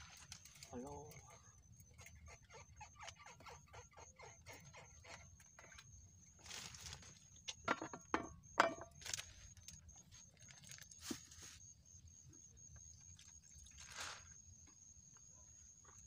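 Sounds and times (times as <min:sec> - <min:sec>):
wet plastic bag crinkling: 0:10.4 - 0:11.0.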